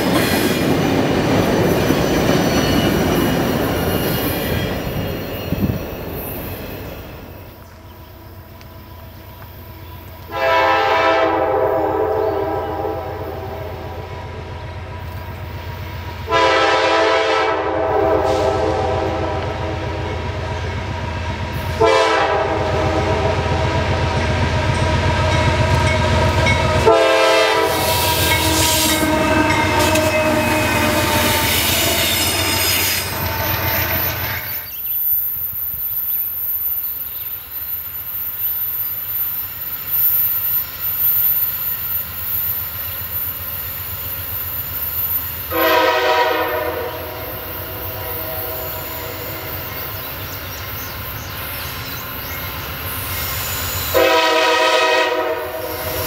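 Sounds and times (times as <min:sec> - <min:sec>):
wheel and rail noise: 0:00.0 - 0:10.4, 0:18.2 - 0:56.0
locomotive air horn blasts: 0:10.3 - 0:14.2, 0:16.2 - 0:20.0, 0:21.7 - 0:23.9, 0:26.8 - 0:33.6, 0:45.5 - 0:49.8, 0:53.9 - 0:56.0.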